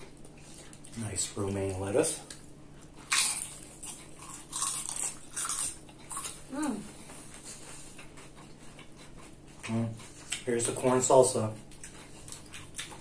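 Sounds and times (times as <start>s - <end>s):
chewing crisp lettuce: 0.0s - 13.0s
person humming: 6.5s - 6.9s.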